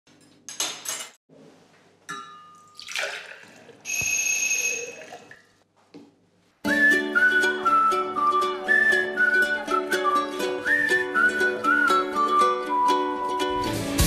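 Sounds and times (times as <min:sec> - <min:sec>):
glass clinking: 0:02.1 - 0:03.2, 0:03.8 - 0:05.4
music with whistled notes: 0:06.7 - 0:14.0.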